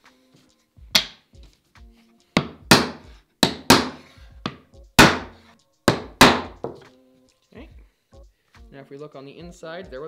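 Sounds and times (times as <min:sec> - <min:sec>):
mallet knocking on wood: 0:01.0 - 0:01.2, 0:02.4 - 0:06.9.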